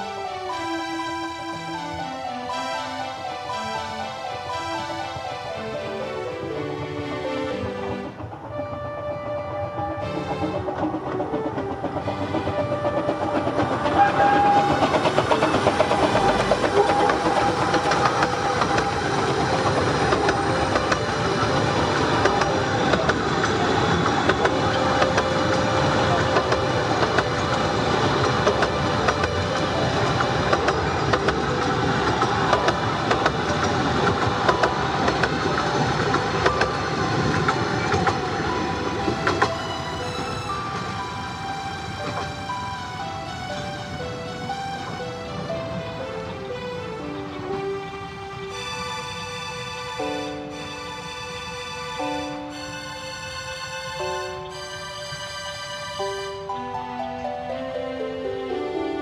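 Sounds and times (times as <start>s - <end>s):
miniature train clattering: 0.0s - 57.6s
wheels clicking over rail joints: 4.5s - 57.6s.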